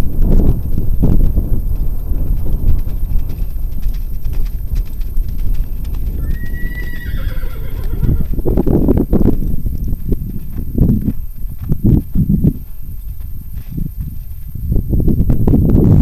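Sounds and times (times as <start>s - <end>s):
hoofbeats on sand: 0.0s - 16.0s
horse whinnying: 6.2s - 8.4s.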